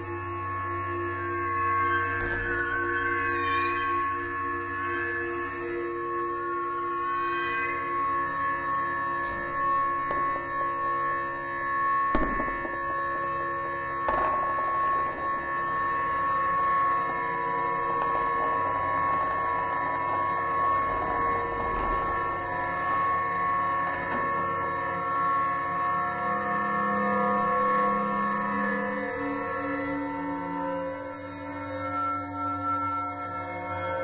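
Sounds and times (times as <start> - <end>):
drone of held tones: 0.0 - 34.0
struck ringing hits: 8.9 - 24.5.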